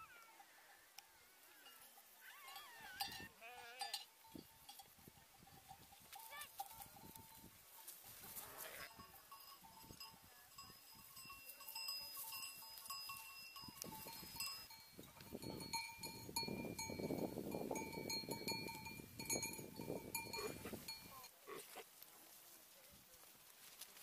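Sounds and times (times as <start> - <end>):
sheep bells ringing: 0.0 - 21.4
sheep bleating: 1.5 - 4.1.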